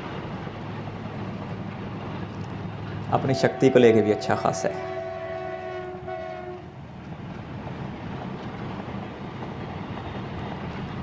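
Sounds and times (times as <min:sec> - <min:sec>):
train wagons rumbling on track: 0:00.0 - 0:11.0
train horn chord: 0:03.2 - 0:06.7.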